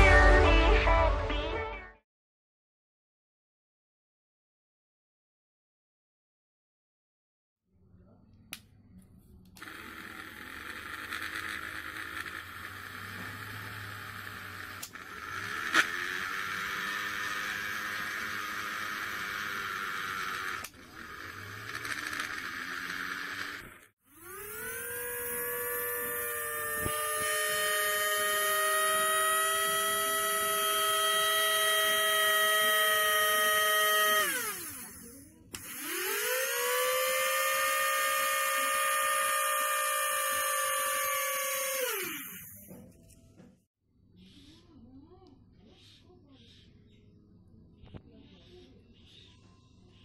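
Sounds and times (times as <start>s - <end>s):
small electric motor whining: 9.6s - 42.9s.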